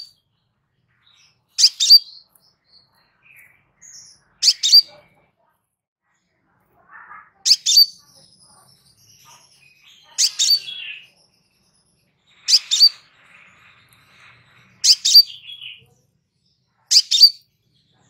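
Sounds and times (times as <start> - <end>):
bird high-pitched double chirps: 1.6 - 2.2, 16.9 - 17.4.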